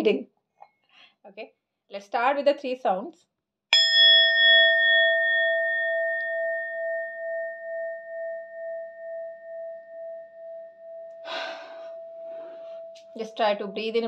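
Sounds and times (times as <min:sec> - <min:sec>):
singing bowl ringing: 0:03.8 - 0:14.0.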